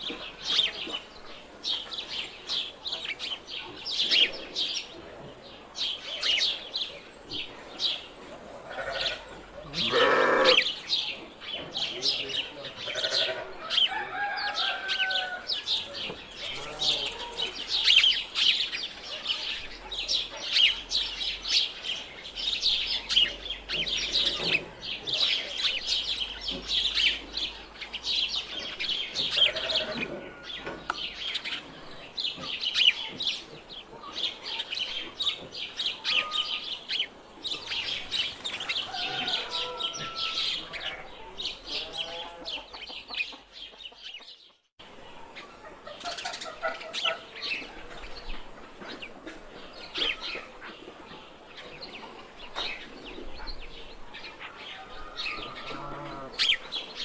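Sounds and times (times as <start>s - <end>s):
sheep and goats bleating: 8.6s - 10.7s, 12.8s - 13.6s, 16.5s - 17.6s, 29.3s - 30.6s, 39.5s - 42.6s, 55.2s - 56.4s.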